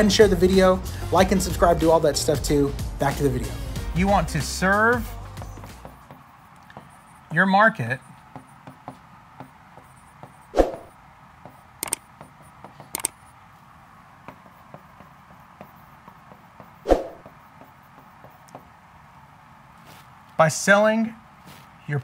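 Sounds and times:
stylus tapping on touchscreen: 0:05.4 - 0:07.4, 0:08.0 - 0:13.4, 0:14.2 - 0:18.8.

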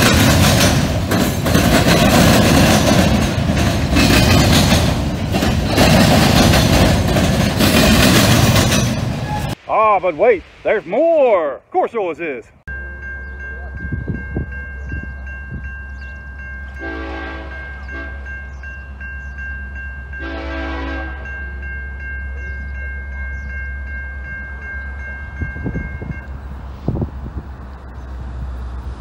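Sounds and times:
crossing warning bell dinging: 0:00.0 - 0:09.6, 0:12.7 - 0:26.6
locomotive horn blasts: 0:16.8 - 0:18.3, 0:20.2 - 0:21.4.

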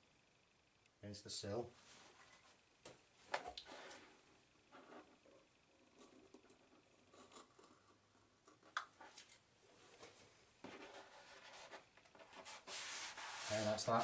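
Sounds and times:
sheet rustling and rubbing: 0:10.0 - 0:14.0.

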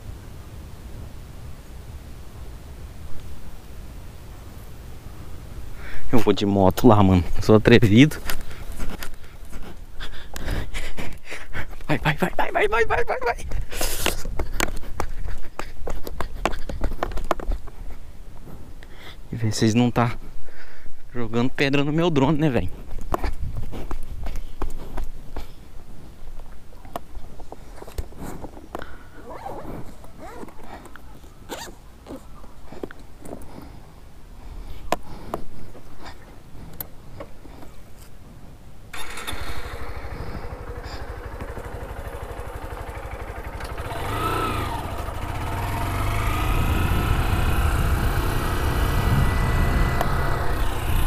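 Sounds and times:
handling clicks and knocks: 0:14.1 - 0:17.9
motorcycle engine running: 0:38.9 - 0:51.0.

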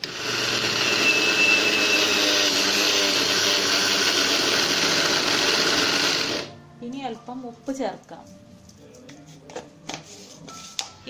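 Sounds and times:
mixer grinder running: 0:00.0 - 0:06.5.

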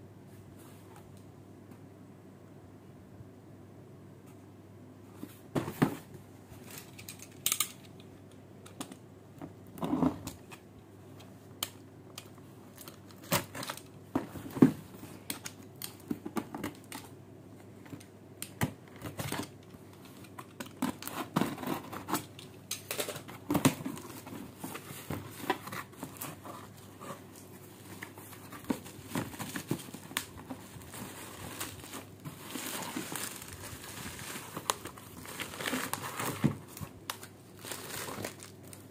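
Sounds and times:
packaging crinkling: 0:27.3 - 0:38.9.

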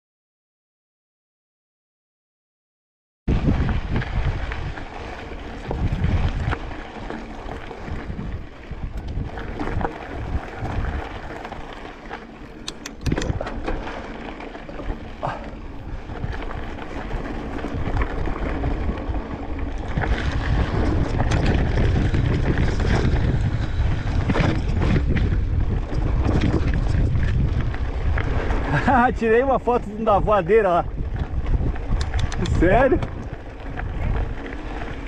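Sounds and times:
wind buffeting microphone: 0:03.3 - 0:35.0
sharp clicks and knocks: 0:12.6 - 0:13.8, 0:31.9 - 0:33.3.

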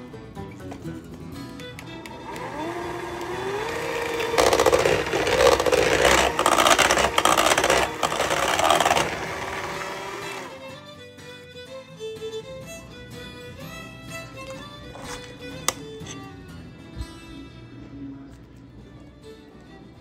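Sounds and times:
electric hand mixer whining: 0:02.0 - 0:10.6
beaters scraping metal bowl: 0:03.2 - 0:10.5, 0:14.9 - 0:16.2.

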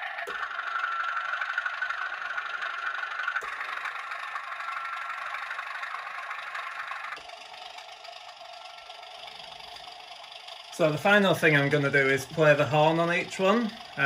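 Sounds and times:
diesel locomotive engine through speaker: 0:00.0 - 0:14.0.

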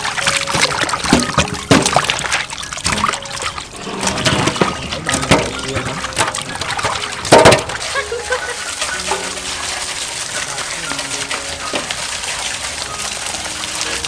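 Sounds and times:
corn cobs knocking in metal bowl: 0:00.0 - 0:03.3, 0:03.9 - 0:08.1, 0:08.7 - 0:12.1
water sloshing and dripping: 0:00.0 - 0:14.0.

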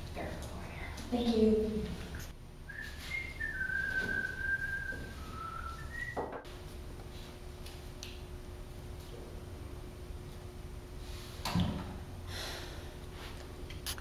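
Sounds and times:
faint steady hum: 0:00.0 - 0:14.0
person whistling a tune: 0:02.7 - 0:06.4.

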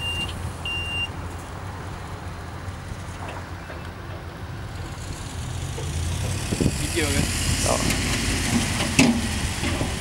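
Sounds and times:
reversing alarm beeping: 0:00.0 - 0:01.1
low engine hum: 0:00.0 - 0:10.0.

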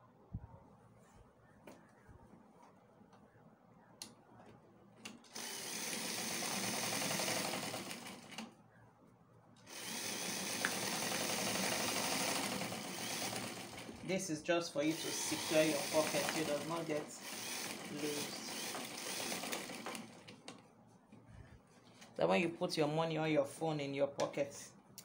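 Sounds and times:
sewing machine stitching: 0:05.3 - 0:08.5, 0:09.7 - 0:14.0, 0:14.9 - 0:20.4.

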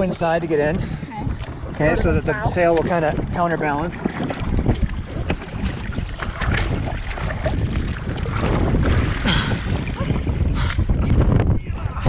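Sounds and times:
water splashing against a hull: 0:00.0 - 0:12.0
wind noise on microphone: 0:00.0 - 0:12.0.

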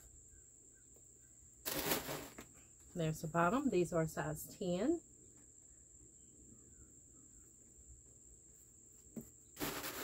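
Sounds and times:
brief rustle: 0:09.6 - 0:10.0.

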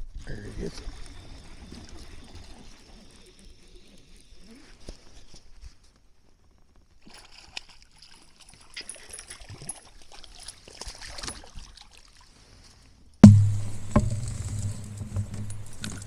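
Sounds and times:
loud thump with low ring: 0:13.2 - 0:16.0.

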